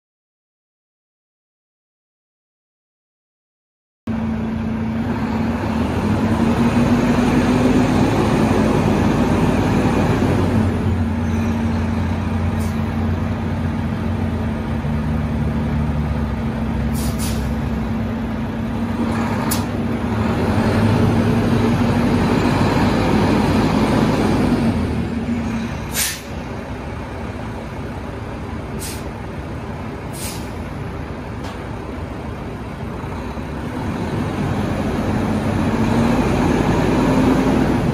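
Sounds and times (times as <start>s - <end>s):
diesel truck engine running: 4.1s - 37.9s
air brake hiss: 12.5s - 12.9s, 16.9s - 17.6s, 25.9s - 26.4s, 28.8s - 29.2s, 30.1s - 30.7s
short air hisses: 12.5s - 12.9s, 16.9s - 17.6s, 25.9s - 26.4s, 28.8s - 29.2s, 30.1s - 30.7s.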